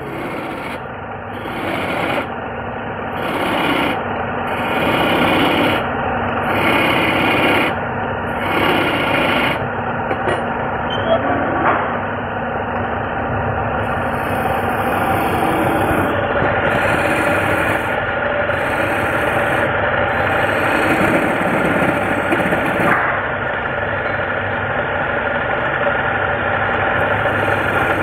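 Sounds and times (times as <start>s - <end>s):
turning tool scraping wood: 0.0s - 0.8s, 1.4s - 2.3s, 3.1s - 9.6s, 13.9s - 22.9s, 27.0s - 28.0s
lathe running hum: 0.0s - 28.0s.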